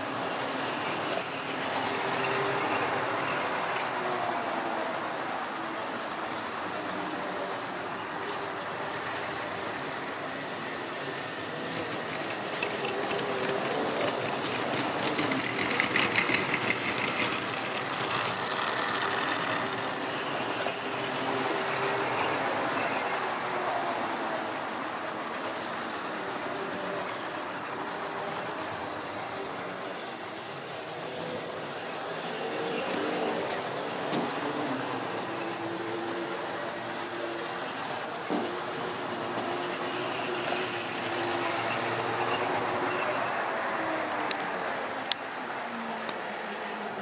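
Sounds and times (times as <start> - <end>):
model train motor hum: 0.0 - 47.0
wheels rolling on rail: 0.0 - 47.0
wheels clicking over rail joints: 4.6 - 23.0.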